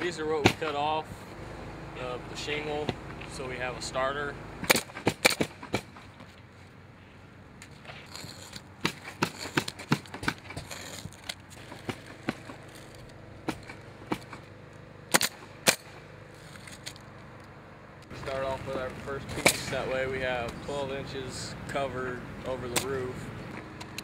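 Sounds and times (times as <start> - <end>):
pneumatic nailer firing: 4.6 - 6.1, 15.1 - 16.1.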